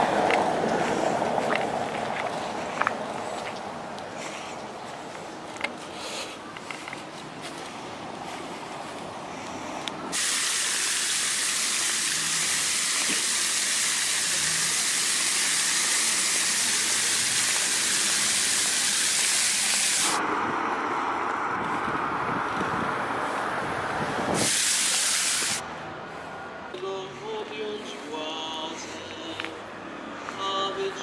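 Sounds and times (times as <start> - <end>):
fountain spray splashing: 10.1 - 20.2, 24.4 - 25.6.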